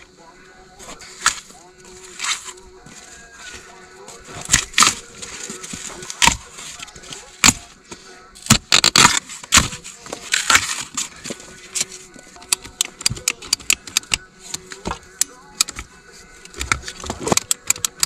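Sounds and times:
scraping and crackling of pipe insulation: 0:00.8 - 0:18.0
sharp clicks: 0:08.5 - 0:09.7, 0:11.8 - 0:18.0.

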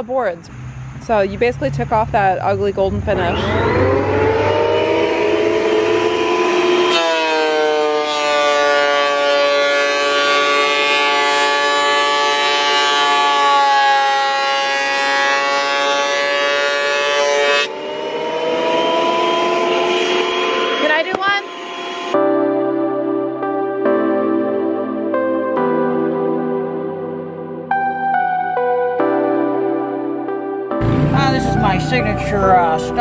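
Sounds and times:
thickness planer motor whine: 0:03.0 - 0:22.8, 0:30.8 - 0:33.0.

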